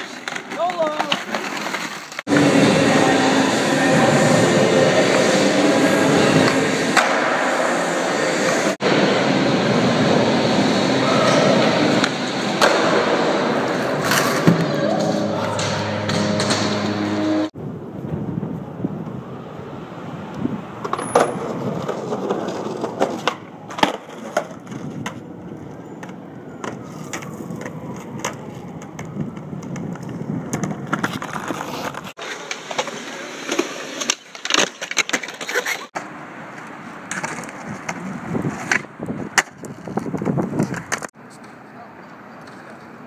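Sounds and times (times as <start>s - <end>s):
skateboard clacking: 0.0s - 2.7s, 20.8s - 41.6s
skateboard wheels rolling on pavement: 0.0s - 43.0s.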